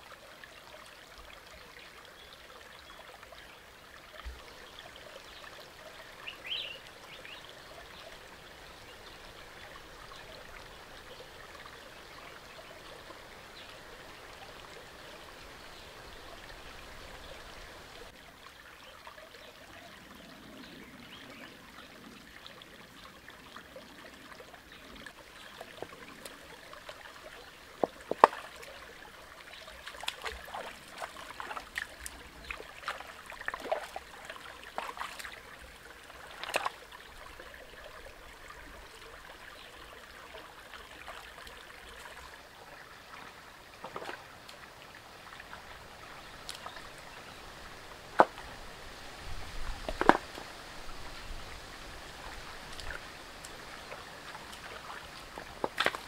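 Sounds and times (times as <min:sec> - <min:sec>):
stream running over rocks: 0:00.0 - 0:56.0
knocks and splashes: 0:27.8 - 0:28.7, 0:32.8 - 0:34.0, 0:36.3 - 0:36.8, 0:43.8 - 0:44.2, 0:48.2 - 0:48.5, 0:49.8 - 0:50.4, 0:54.5 - 0:56.0.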